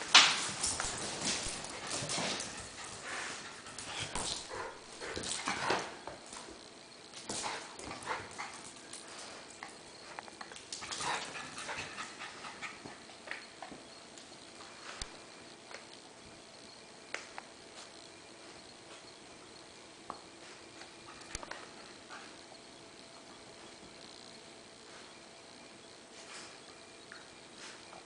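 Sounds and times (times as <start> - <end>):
paws clicking on hardwood floor: 0.0 - 6.6, 7.2 - 14.2
small dogs playing noises: 0.5 - 13.9.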